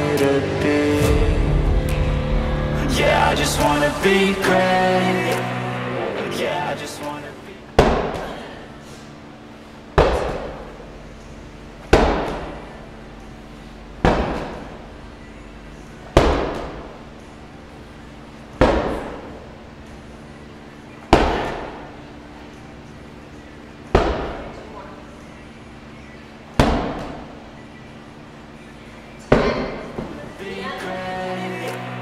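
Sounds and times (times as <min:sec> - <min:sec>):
medicine ball thudding on turf: 0:10.0 - 0:10.9, 0:11.8 - 0:12.7, 0:14.0 - 0:14.8, 0:16.1 - 0:17.0, 0:18.6 - 0:19.4, 0:21.1 - 0:21.9, 0:23.9 - 0:24.6, 0:26.6 - 0:27.3.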